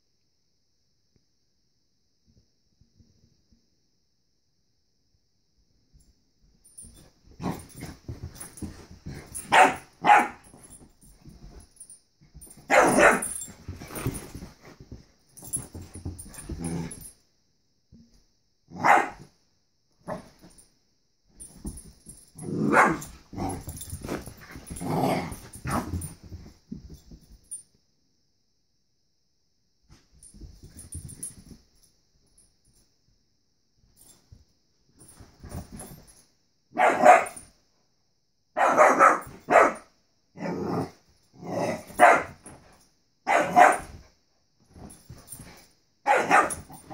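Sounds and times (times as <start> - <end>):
puppy barking: 9.5 - 10.4, 12.7 - 13.4, 18.8 - 19.2, 22.6 - 23.1, 36.8 - 37.4, 38.6 - 39.9, 42.0 - 42.4, 43.3 - 43.9, 46.1 - 46.6.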